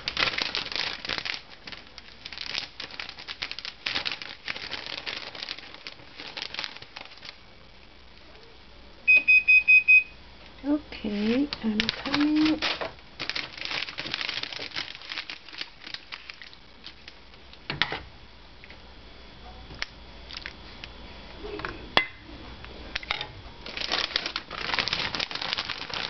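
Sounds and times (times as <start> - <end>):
pasta sheets crinkling: 0.0 - 8.3, 10.8 - 17.7, 23.6 - 26.0.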